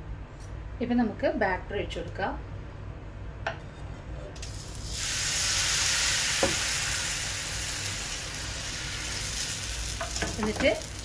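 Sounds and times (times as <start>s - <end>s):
batter sizzling in hot pan: 4.4s - 11.0s.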